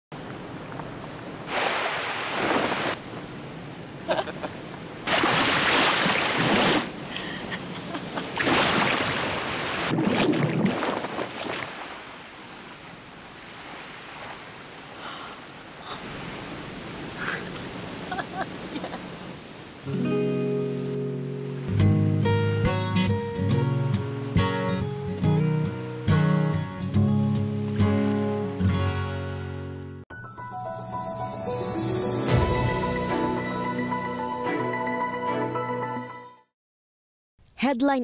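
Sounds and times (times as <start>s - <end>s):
ocean waves rushing: 0.4s - 21.7s.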